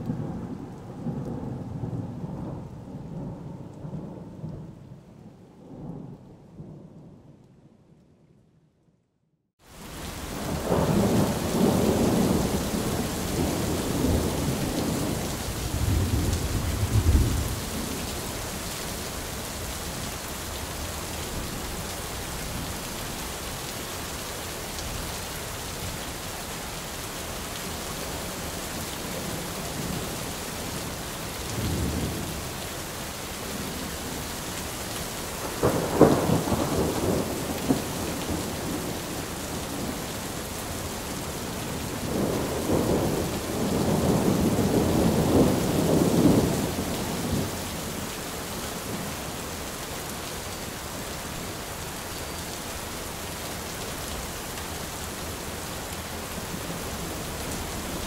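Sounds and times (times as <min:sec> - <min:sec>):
steady rain: 0:00.0 - 0:08.1, 0:09.6 - 0:58.0
thunder rumbling: 0:10.4 - 0:18.6, 0:35.4 - 0:40.1, 0:41.7 - 0:47.6.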